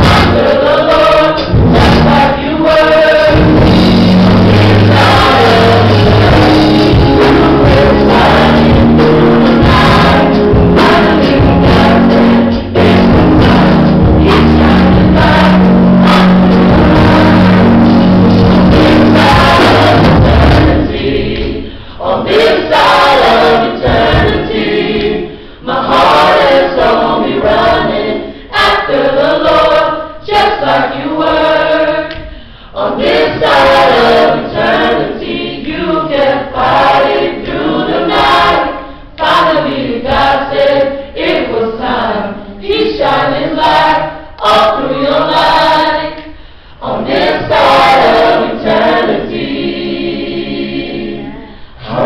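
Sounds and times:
steady low notes: 0.0s - 27.6s
group singing gospel song: 0.0s - 52.0s.

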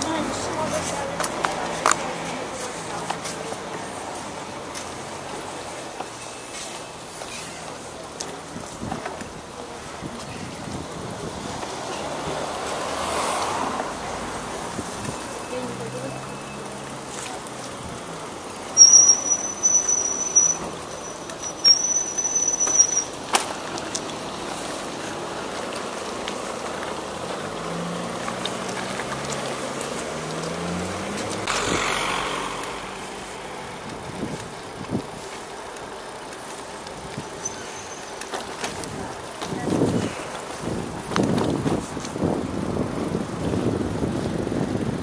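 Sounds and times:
brakes squealing: 0.0s - 45.0s
vehicle speeding past: 11.7s - 14.8s, 27.4s - 33.8s.

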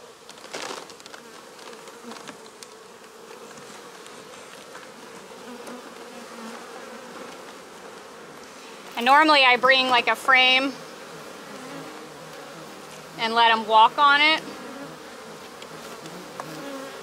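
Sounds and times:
bee swarm buzzing: 0.0s - 17.0s.

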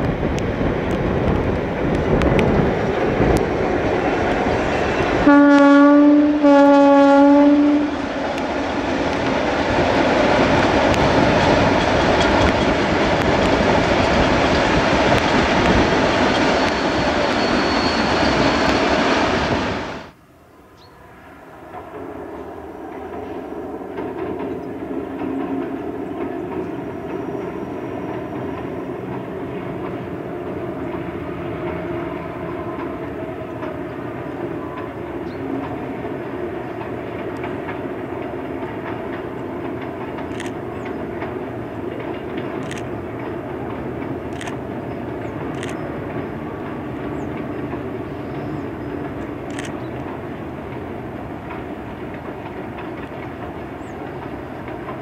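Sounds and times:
train wagons rumbling on viaduct: 0.0s - 20.1s, 21.0s - 55.0s
wheels clicking over rail joints: 8.2s - 17.4s, 22.8s - 55.0s
diesel locomotive engine running: 21.1s - 55.0s.

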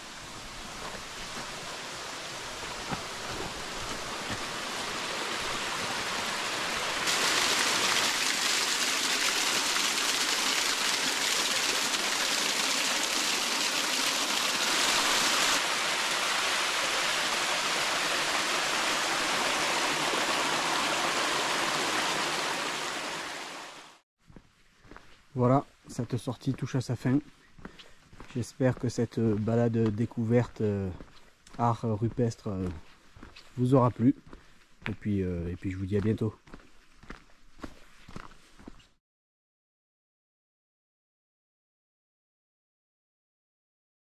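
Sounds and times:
waterfall splashing down rocks: 0.0s - 24.0s.

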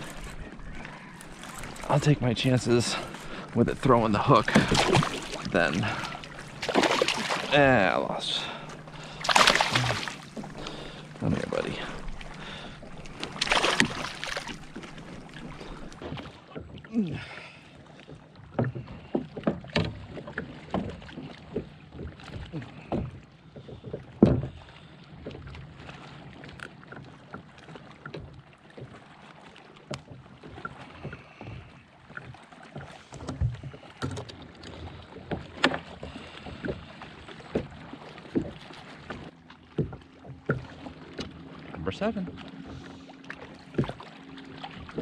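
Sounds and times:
fish splashing in water: 2.9s - 16.4s
knocks and clicks of tackle: 32.7s - 36.7s.

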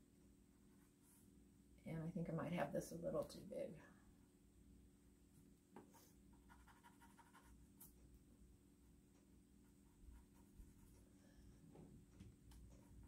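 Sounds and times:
low steady hum: 0.0s - 13.0s
pencil scratching on paper: 5.8s - 7.9s, 9.6s - 11.1s.

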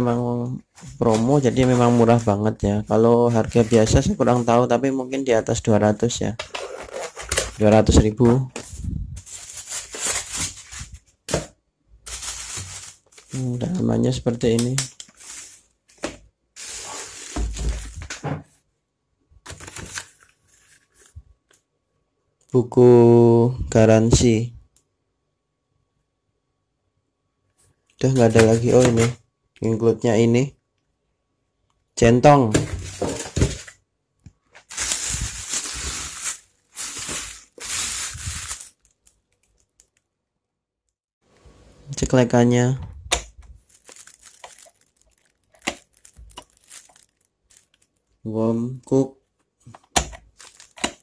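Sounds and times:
plastic wrapping crinkling: 0.8s - 2.4s, 6.5s - 11.2s, 12.1s - 13.8s, 14.6s - 18.2s, 34.5s - 40.1s, 43.4s - 48.2s, 49.9s - 51.0s.

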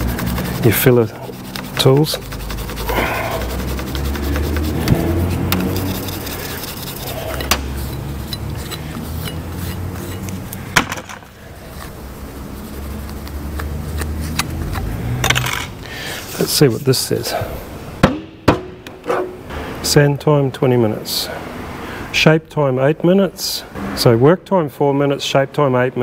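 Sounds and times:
rag rubbing and scraping: 0.0s - 17.6s.

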